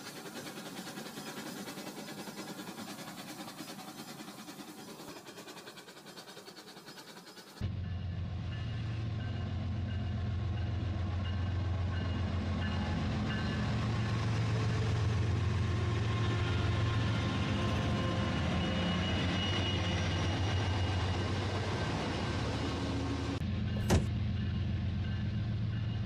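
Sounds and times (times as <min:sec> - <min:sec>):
toy train motor humming: 0:00.0 - 0:07.6.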